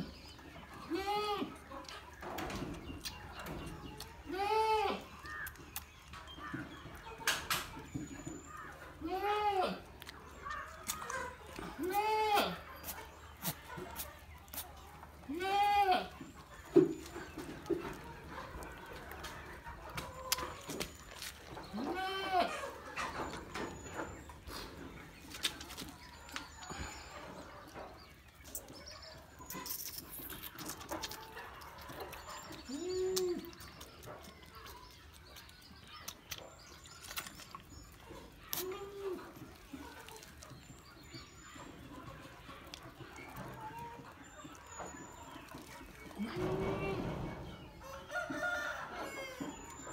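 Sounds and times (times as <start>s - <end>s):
goat kid bleating: 0.9s - 1.5s, 4.3s - 5.1s, 9.0s - 9.8s, 11.8s - 12.6s, 15.3s - 16.2s, 21.7s - 22.5s
goat kid sucking bottle: 12.8s - 14.8s.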